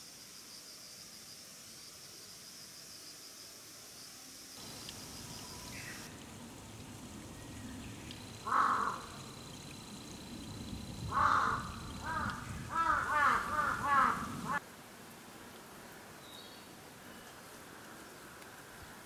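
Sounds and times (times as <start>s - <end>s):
crows cawing: 8.4s - 9.4s, 11.0s - 14.6s.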